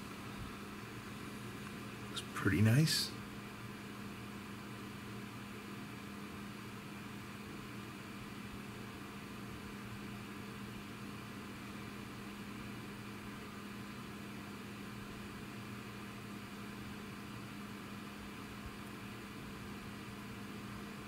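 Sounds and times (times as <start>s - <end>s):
faint hiss: 2.1s - 3.2s.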